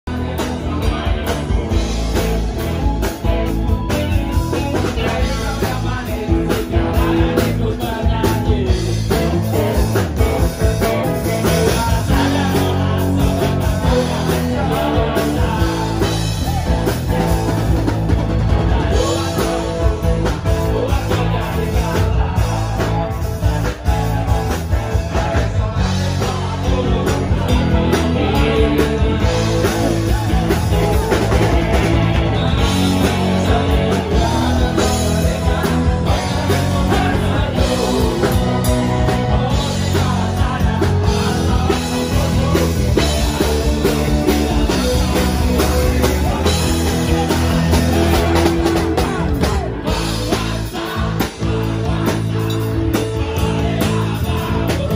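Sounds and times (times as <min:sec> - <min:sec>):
drum kit: 0:00.0 - 0:54.9
electric guitar: 0:00.0 - 0:54.9
live rock band music: 0:00.0 - 0:54.9
people singing into microphones: 0:00.1 - 0:54.9.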